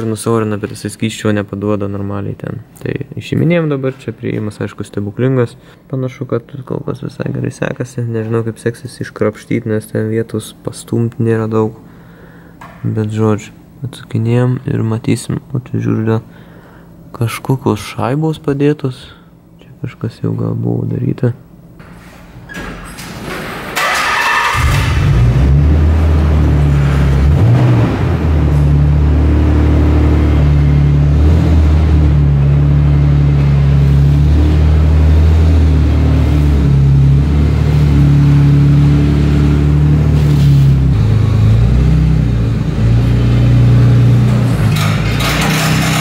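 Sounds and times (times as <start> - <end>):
car engine cranking and starting: 23.5 - 46.0
car engine running: 24.4 - 46.0.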